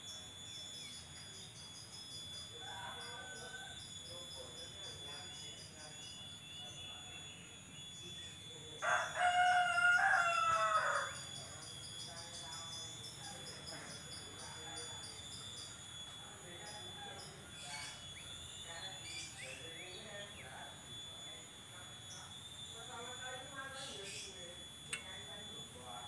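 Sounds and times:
insect chirping: 0.0s - 26.0s
rooster crowing: 2.5s - 4.2s, 8.8s - 11.4s.

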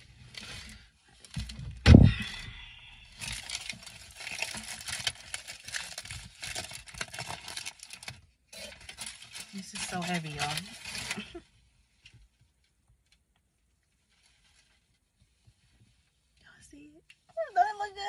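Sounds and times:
loud thump: 1.6s - 3.0s
packaging rustling and crinkling: 3.0s - 12.2s, 13.9s - 16.0s.

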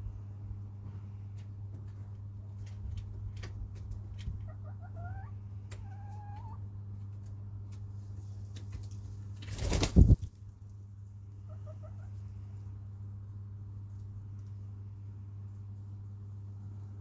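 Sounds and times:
rustle of feathers: 8.0s - 10.8s.

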